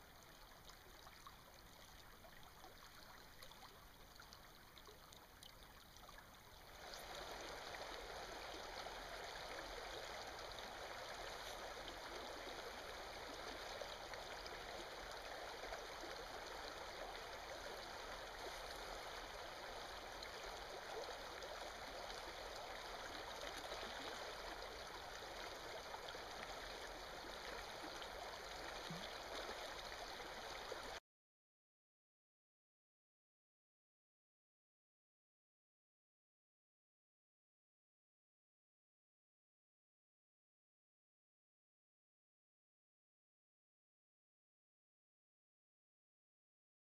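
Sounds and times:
stream flowing over rocks: 0.1s - 31.0s.

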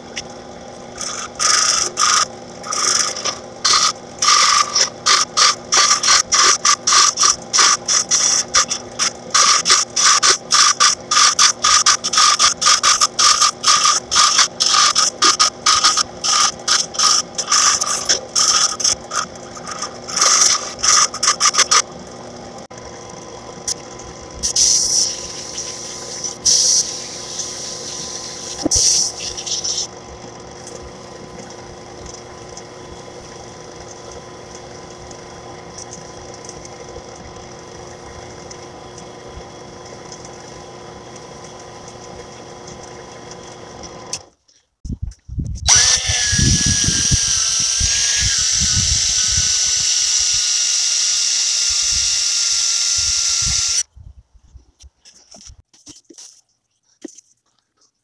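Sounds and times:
lathe motor humming: 0.0s - 44.3s, 45.7s - 53.9s
turning tool scraping wood: 0.9s - 21.9s, 24.4s - 44.3s.

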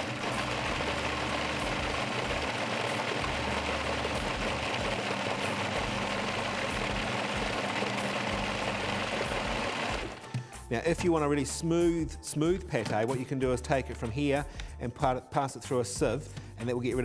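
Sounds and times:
food processor motor blending: 0.0s - 10.3s.

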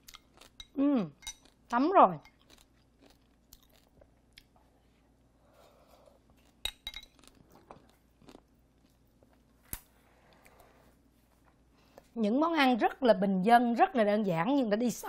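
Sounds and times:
crunchy chewing: 0.0s - 0.7s, 2.4s - 4.6s, 5.7s - 9.5s.

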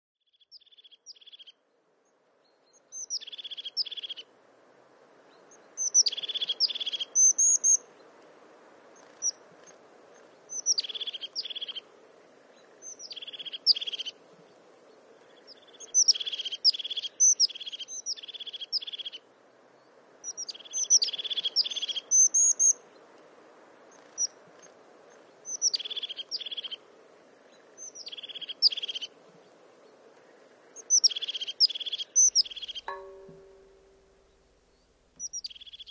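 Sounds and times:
faint background hiss: 0.3s - 35.9s
songbird singing: 0.3s - 35.9s.

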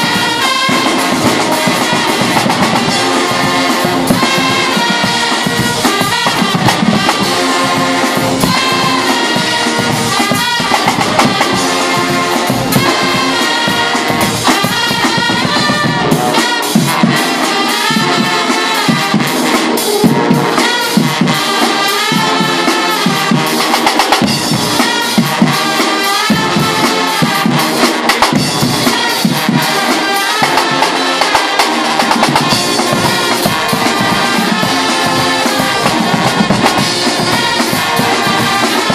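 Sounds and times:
brass band playing loudly: 0.0s - 38.9s
drums and crashing cymbals: 0.0s - 38.9s.

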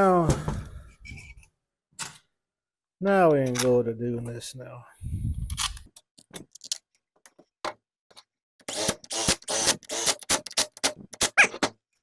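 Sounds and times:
cordless drill driving screws: 8.7s - 10.9s.

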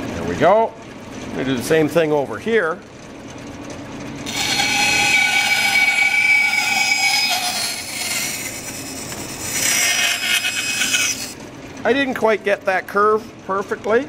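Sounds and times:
bandsaw cutting wood: 4.3s - 11.4s.

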